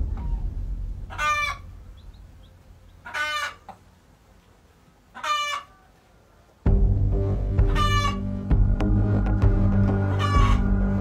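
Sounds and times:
hen squawking: 0:01.1 - 0:03.8, 0:05.1 - 0:05.9, 0:07.6 - 0:08.3, 0:10.1 - 0:10.7.

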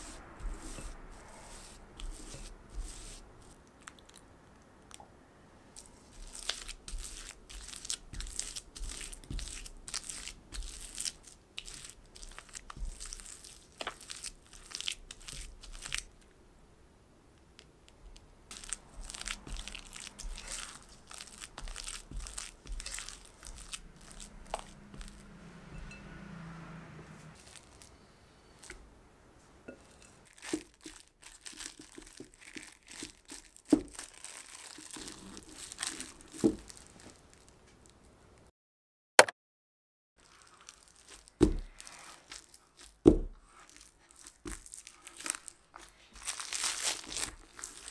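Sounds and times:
spatula scraping batter in glass bowl: 0:00.0 - 0:03.5, 0:18.5 - 0:26.1.

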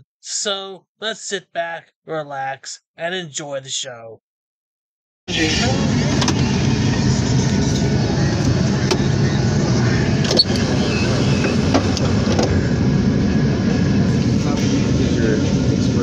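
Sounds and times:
roadside traffic roar: 0:05.3 - 0:16.0.

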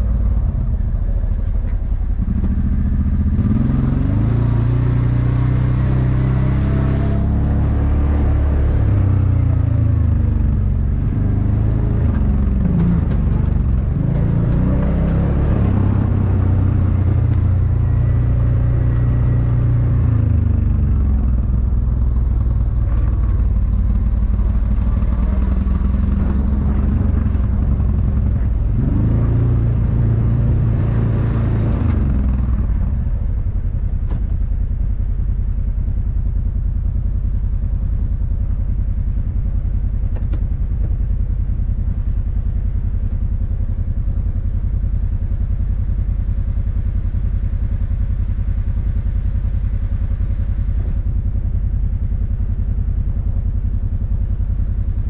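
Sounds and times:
off-road vehicle engine revving: 0:00.0 - 0:33.6.

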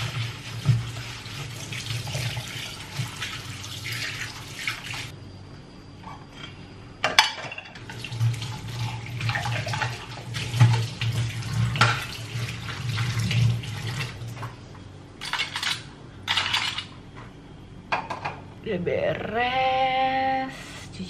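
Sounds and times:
dishes clinking: 0:06.1 - 0:07.9, 0:17.9 - 0:18.4
tap water splashing into sink: 0:09.2 - 0:14.1.

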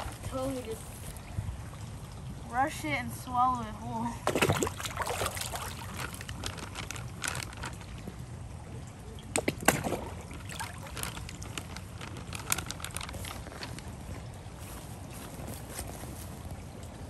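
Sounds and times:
fish splashing in water: 0:04.2 - 0:08.4, 0:09.2 - 0:14.4.

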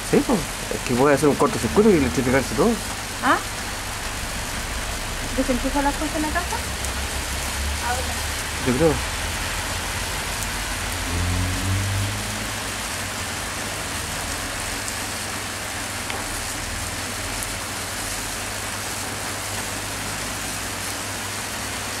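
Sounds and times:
low rumble: 0:00.0 - 0:13.0
rain hissing: 0:00.0 - 0:22.0.

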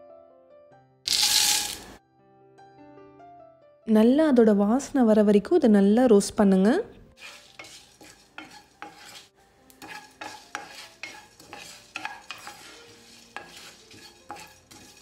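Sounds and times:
seeds rattling in pan: 0:01.1 - 0:02.0, 0:07.2 - 0:15.0
wooden spatula scraping pan: 0:07.2 - 0:15.0.

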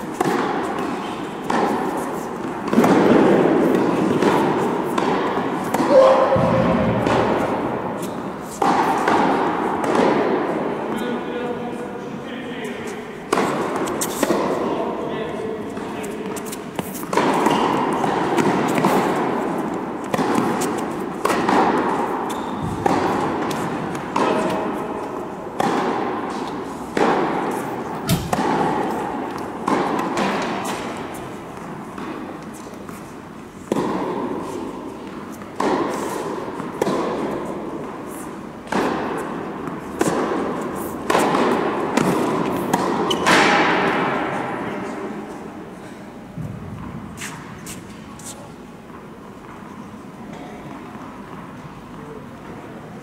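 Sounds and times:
tennis ball bounces: 0:00.0 - 0:10.5, 0:15.7 - 0:33.0, 0:33.6 - 0:44.4
tennis racket strikes: 0:00.0 - 0:10.5, 0:13.2 - 0:14.7, 0:15.7 - 0:44.6.

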